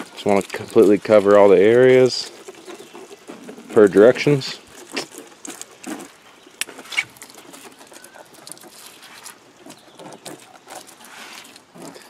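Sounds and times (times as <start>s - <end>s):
liquid patter on plastic: 0.0s - 12.0s.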